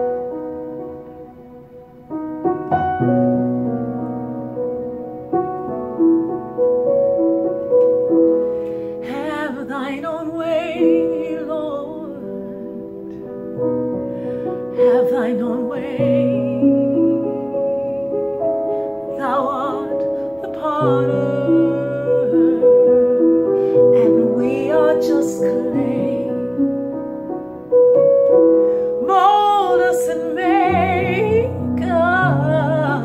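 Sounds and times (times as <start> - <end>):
slow piano chords: 0.0 - 33.0
woman singing with vibrato: 9.0 - 13.2, 14.2 - 18.4, 19.0 - 22.9, 23.9 - 26.6, 29.0 - 33.0.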